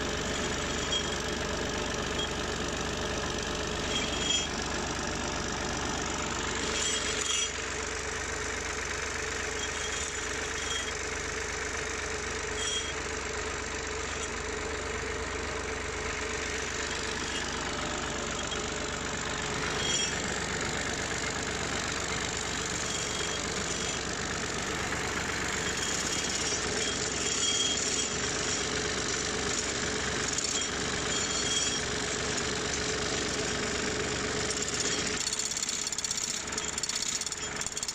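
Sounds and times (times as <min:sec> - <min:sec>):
tractor diesel engine running: 0:00.0 - 0:37.9.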